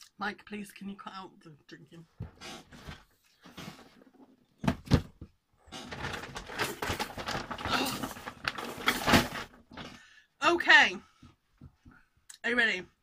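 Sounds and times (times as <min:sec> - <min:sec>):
thumps: 0:04.6 - 0:10.0
plastic bag crinkling: 0:05.8 - 0:09.6.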